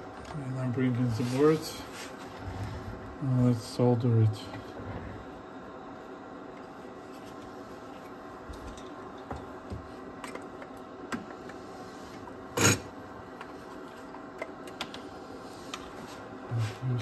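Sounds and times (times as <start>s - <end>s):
small clicks and taps: 14.4s - 15.0s.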